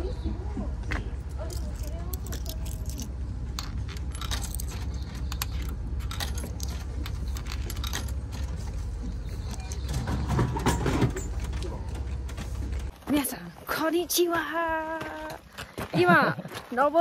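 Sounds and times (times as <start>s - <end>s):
steady low rumble: 0.0s - 13.6s
coins clinking into coin slot: 1.4s - 8.8s.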